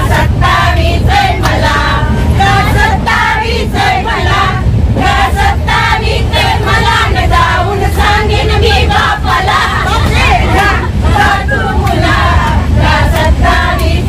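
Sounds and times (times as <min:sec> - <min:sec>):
train rumbling: 0:00.0 - 0:14.0
women singing together: 0:00.0 - 0:14.0
clapping along: 0:01.4 - 0:01.6, 0:11.8 - 0:14.0.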